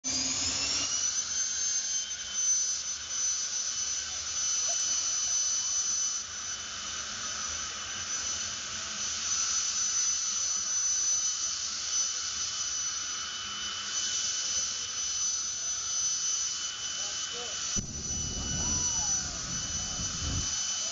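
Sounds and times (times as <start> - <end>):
jet turbine engine whining: 0.0 - 20.9
rushing hiss: 17.8 - 20.6.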